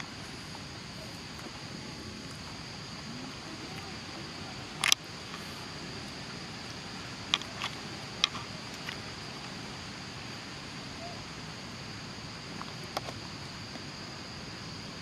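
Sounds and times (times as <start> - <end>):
high-pitched insect drone: 0.0 - 15.0
sharp clicks: 4.8 - 5.4.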